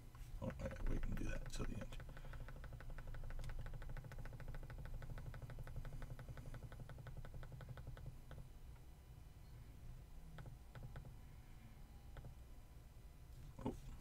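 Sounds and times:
steady low hum: 0.0 - 14.0
rapid computer clicks: 0.4 - 8.9.

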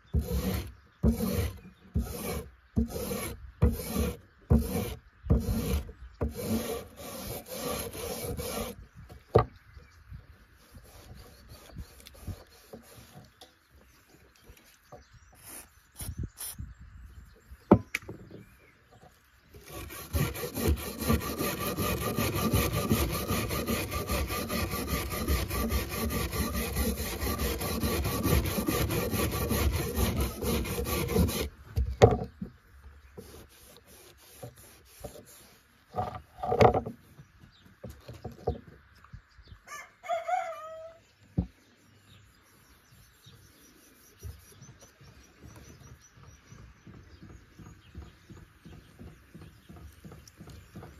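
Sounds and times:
rapid rubbing on wood: 0.2 - 8.8, 10.7 - 13.3, 19.6 - 31.5, 33.2 - 36.8
rooster crowing: 39.7 - 41.0.

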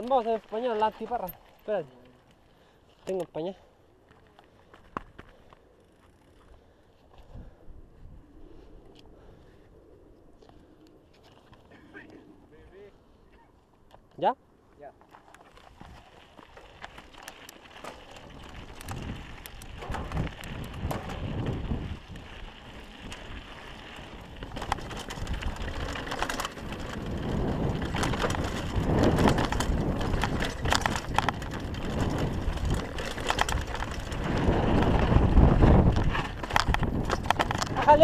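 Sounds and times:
bike rattling: 0.0 - 7.6, 15.0 - 38.0
tyres crunching over gravel: 15.0 - 38.0
wind on microphone: 18.2 - 38.0.

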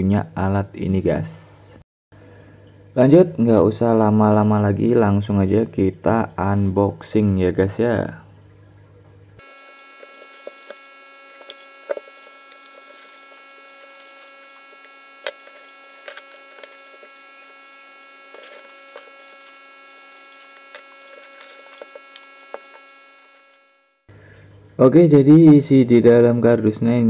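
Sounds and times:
electrical hum: 9.4 - 24.7.

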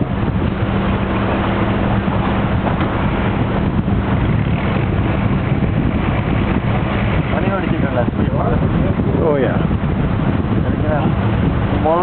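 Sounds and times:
boat engine humming: 0.0 - 12.0
water wash: 0.0 - 12.0
wind buffeting microphone: 0.0 - 12.0.

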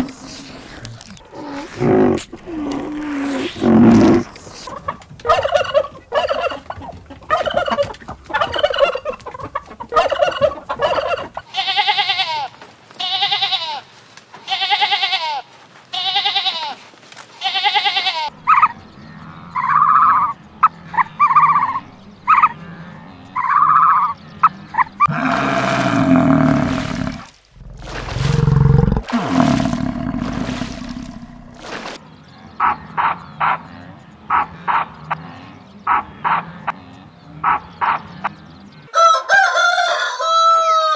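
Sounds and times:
animal calls: 0.0 - 11.5, 18.4 - 35.2
turkey gobbling: 4.3 - 11.4, 18.5 - 18.8, 19.6 - 22.6, 23.4 - 24.1.

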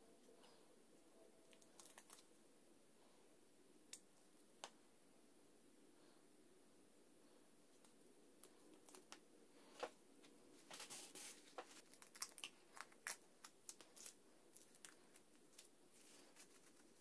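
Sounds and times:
wrapper crinkling and rustling: 1.6 - 2.3, 10.7 - 17.0.

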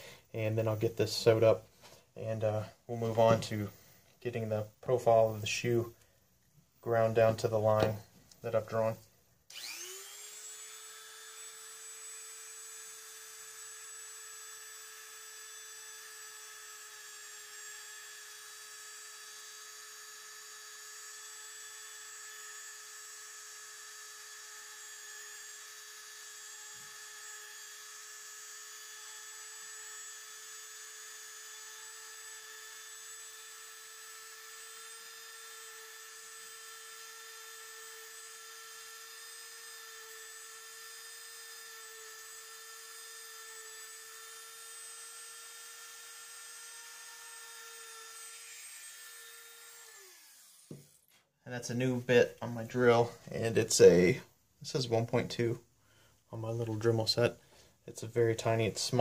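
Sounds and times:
rotary tool whining: 9.5 - 51.2.

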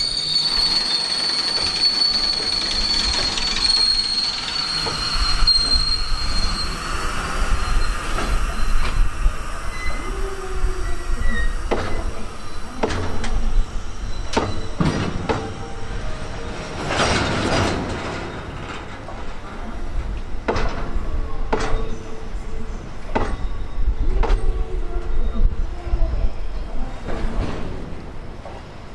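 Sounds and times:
wheels clanking over rail joints: 0.0 - 6.7, 14.1 - 22.0
high-pitched wheel squeal: 0.0 - 9.0, 9.7 - 11.6
freight train rolling past: 0.0 - 28.9.

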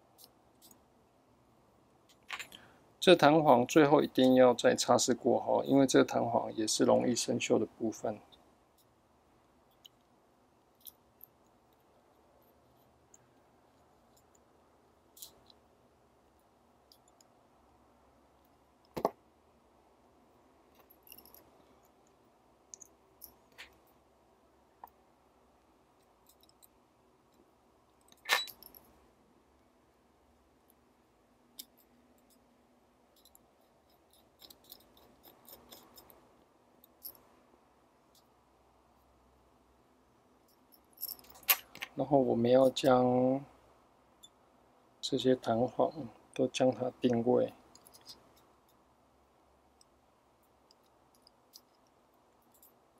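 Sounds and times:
small metallic clicks of tweezers: 50.7 - 52.8.

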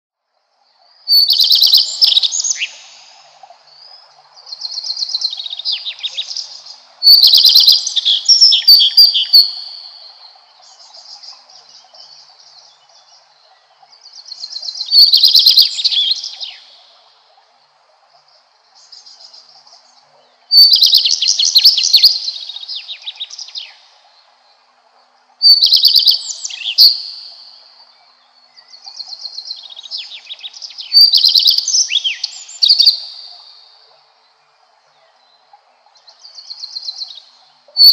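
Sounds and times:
bird singing whistles and twitters: 1.1 - 3.0, 7.0 - 9.9, 14.4 - 16.6, 20.5 - 22.4, 25.4 - 27.4, 29.4 - 33.3.

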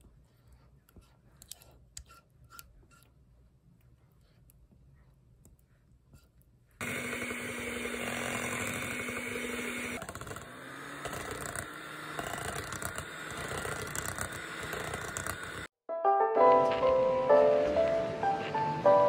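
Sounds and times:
electric hand mixer whipping cream: 6.8 - 15.7.

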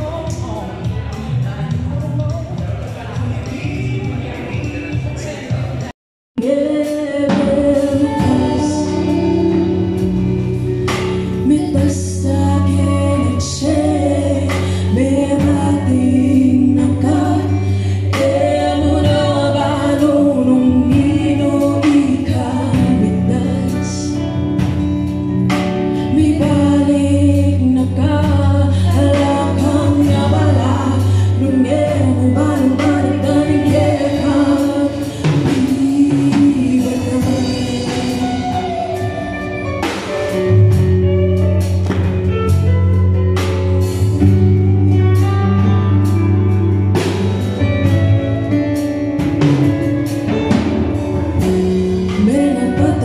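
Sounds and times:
women singing: 0.0 - 4.8, 6.4 - 24.8, 25.8 - 40.0, 51.4 - 53.0
steady drum beat: 0.0 - 27.5, 28.1 - 53.0
live band playing: 0.0 - 53.0.

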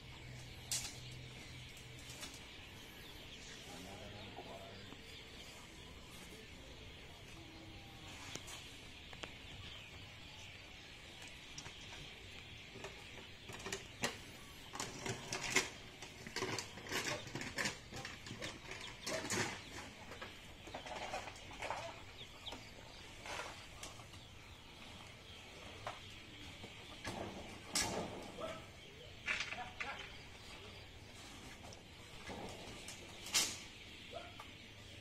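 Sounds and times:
animal or bird calls: 11.4 - 35.0.

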